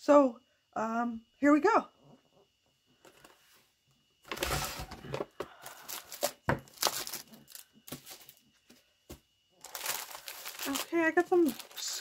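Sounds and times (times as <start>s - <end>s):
plastic packages crinkling: 4.3s - 8.4s, 9.6s - 12.0s.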